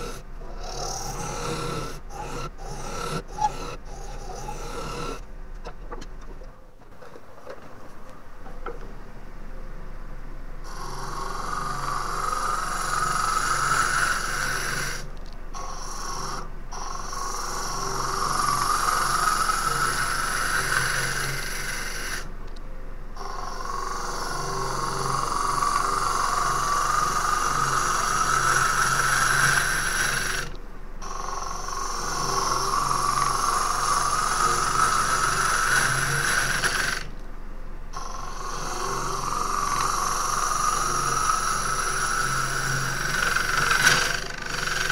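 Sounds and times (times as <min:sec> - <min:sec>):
wood lathe humming: 0:00.0 - 0:05.3, 0:10.7 - 0:22.4, 0:23.2 - 0:37.2, 0:38.0 - 0:44.9
gouge cutting wood on a lathe: 0:11.3 - 0:15.0, 0:15.7 - 0:22.3, 0:23.7 - 0:30.6, 0:31.4 - 0:37.1, 0:38.0 - 0:44.9.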